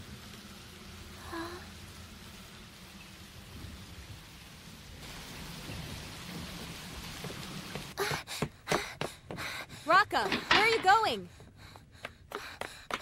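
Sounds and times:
heavy rain pouring: 0.0 - 8.3.

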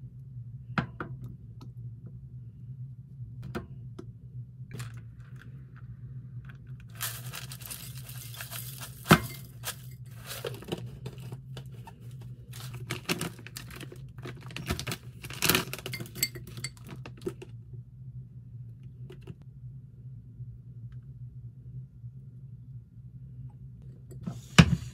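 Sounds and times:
low steady hum: 0.0 - 24.9
plastic bag crinkling: 4.8 - 5.6, 6.4 - 17.3.

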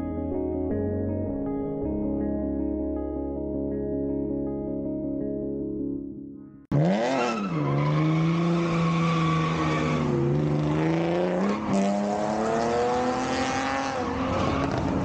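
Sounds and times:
car engine revving: 6.7 - 15.0
tyre squeal: 7.2 - 10.2.

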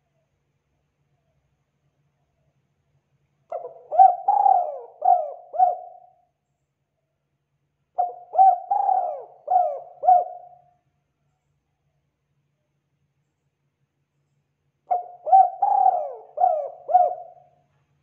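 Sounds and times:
dove cooing: 3.5 - 6.2, 8.0 - 10.6, 14.9 - 17.6.

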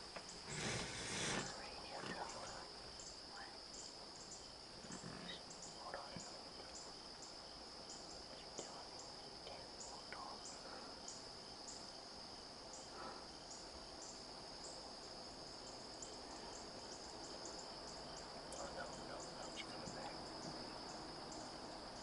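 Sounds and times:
crickets droning: 0.0 - 22.0.

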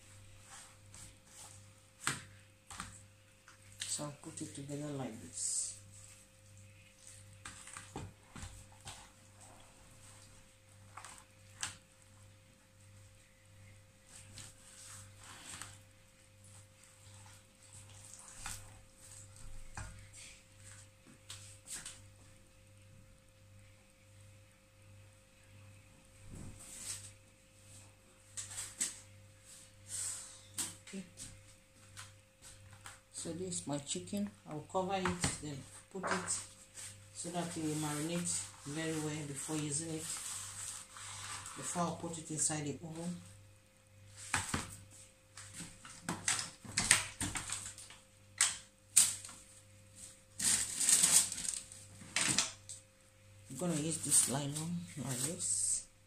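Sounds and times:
faint steady hum: 0.0 - 56.0
plastic bag crinkling: 50.4 - 51.8.

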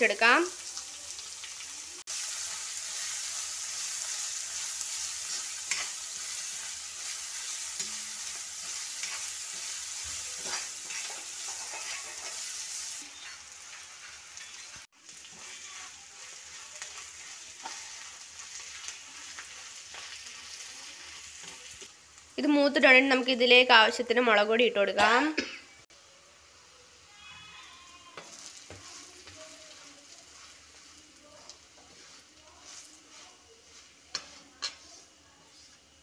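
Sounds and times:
vegetables sizzling in hot oil: 0.0 - 36.0
metal spoon scraping pan: 4.5 - 21.8, 28.2 - 35.8.

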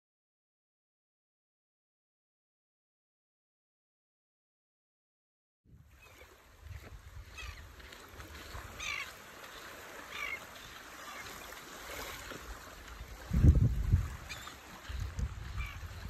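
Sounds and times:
low wind rumble on microphone: 6.6 - 8.8, 12.8 - 16.0.

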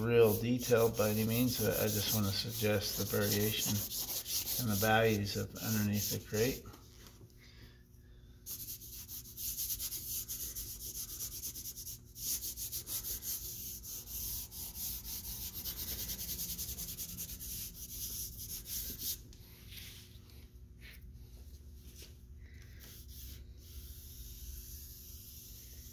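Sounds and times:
charcoal scratching on paper: 0.0 - 6.6, 8.5 - 19.2.

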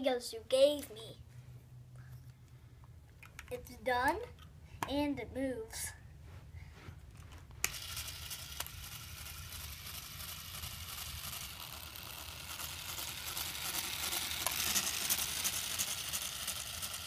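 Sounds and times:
electric motor whirring: 7.6 - 17.0.

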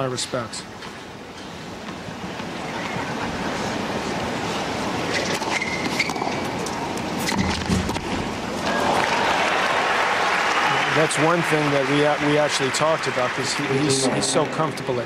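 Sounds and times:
stadium crowd murmur: 2.2 - 5.1, 8.4 - 15.0
shoes squeaking on court: 5.0 - 8.2.

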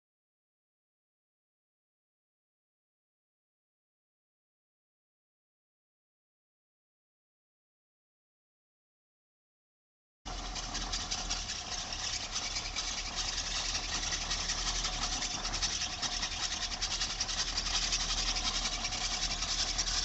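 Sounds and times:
diesel truck engine idling: 10.3 - 20.0.

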